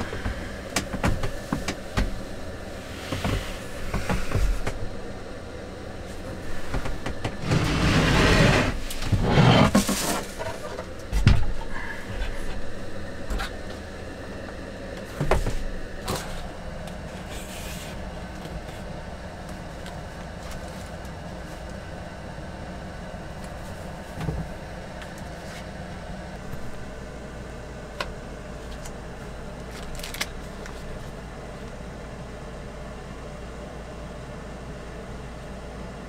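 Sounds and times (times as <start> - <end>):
low steady hum: 0.0 - 36.0
box scraping rustle: 7.4 - 10.7.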